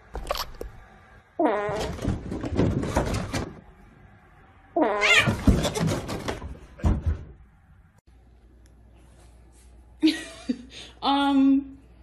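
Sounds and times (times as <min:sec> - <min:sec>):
cat meowing: 0:04.8 - 0:05.4.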